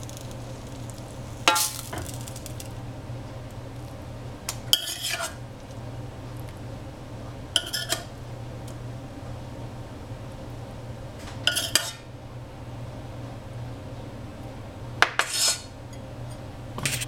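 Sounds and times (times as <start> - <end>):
steady low hum: 0.0 - 17.0
metal spatula scraping pan: 4.7 - 5.4, 7.6 - 8.1, 11.5 - 12.0, 15.2 - 15.7.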